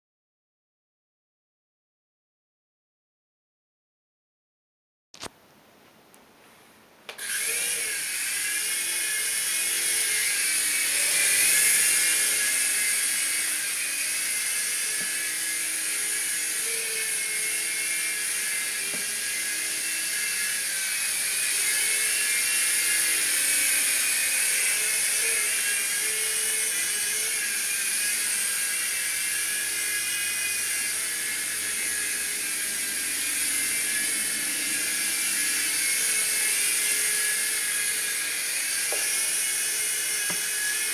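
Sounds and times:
rc helicopter rotors whirring: 0:07.1 - 0:40.9.

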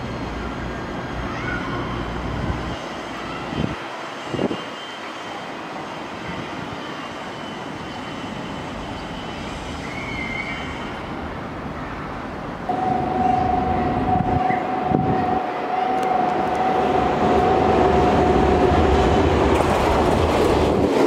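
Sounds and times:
electric train rumble: 0:00.0 - 0:21.0
loud steady high tone: 0:12.7 - 0:19.4.

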